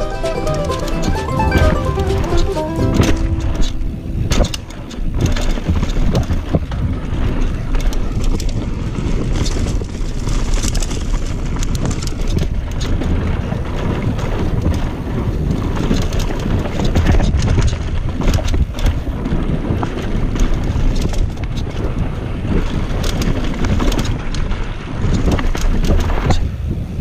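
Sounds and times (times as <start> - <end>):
rumble of bike tyres: 4.0 - 27.0
bike clicks and rattles: 4.3 - 27.0.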